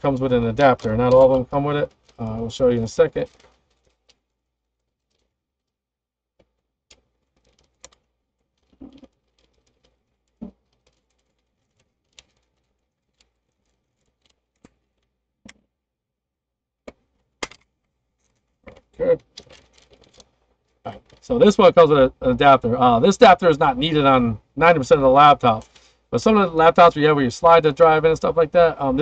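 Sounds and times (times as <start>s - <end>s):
packaging clicks and rustles: 0.0s - 5.8s, 6.4s - 15.7s, 16.9s - 23.8s, 25.2s - 26.1s.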